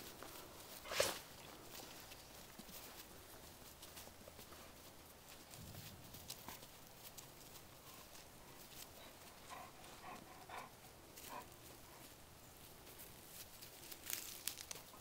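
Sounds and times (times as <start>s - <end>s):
paws scuffling on dry ground: 0.0s - 15.0s
dogs yelping faintly: 9.0s - 12.1s.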